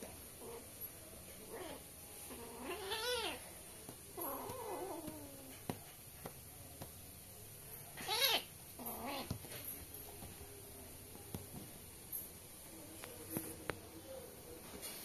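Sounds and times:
kittens mewing: 1.6 - 3.4, 8.0 - 9.4.

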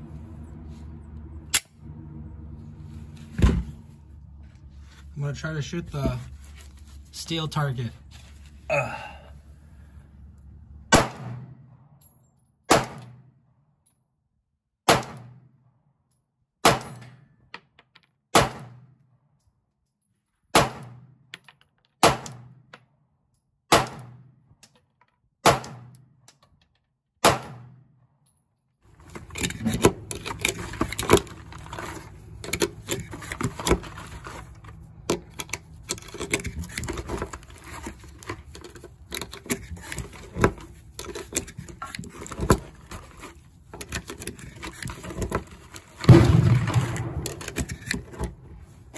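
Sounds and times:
pistol shots echoing: 25.4 - 25.9, 27.2 - 27.8, 46.1 - 47.4.

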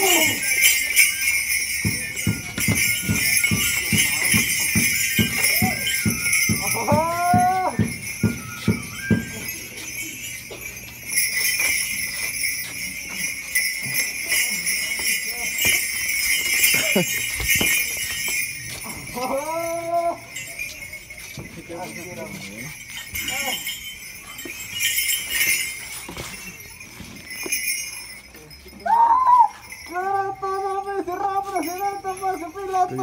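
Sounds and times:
small bells jingling: 0.0 - 33.0.

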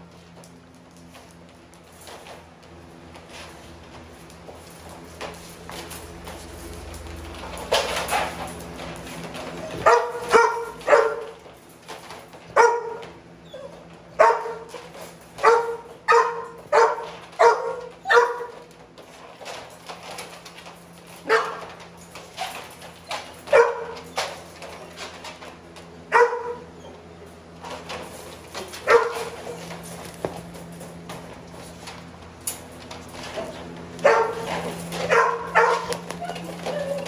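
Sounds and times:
dogs barking: 9.6 - 11.4, 12.5 - 14.8, 15.4 - 18.6, 21.2 - 21.7, 23.4 - 24.2, 26.1 - 26.9, 28.8 - 29.7, 34.0 - 37.0.

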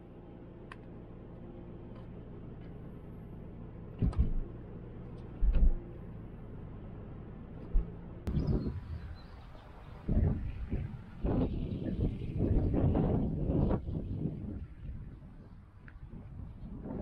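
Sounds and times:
car engine and road noise: 0.0 - 17.0
short low thumps: 4.0 - 4.5.

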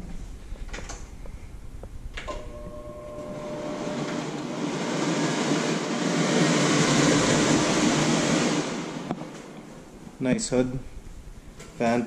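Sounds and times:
range hood exhaust fan running: 0.0 - 12.0.

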